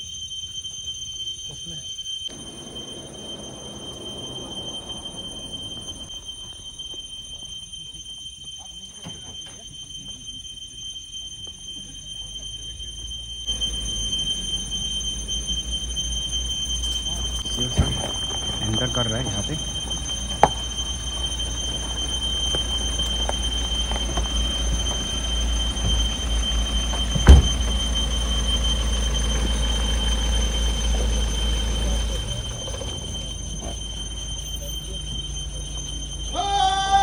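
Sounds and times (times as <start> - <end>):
high-pitched whine: 1.5 - 37.0
car engine low rumble: 2.3 - 7.8, 12.0 - 36.3
sharp thump: 27.2 - 27.7.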